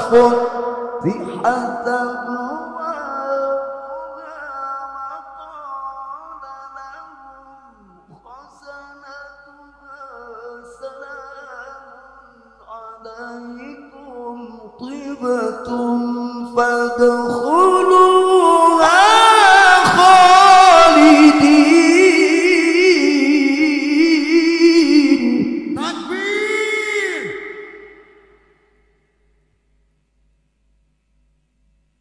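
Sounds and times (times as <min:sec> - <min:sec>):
man chanting into a microphone: 0:00.0 - 0:28.1.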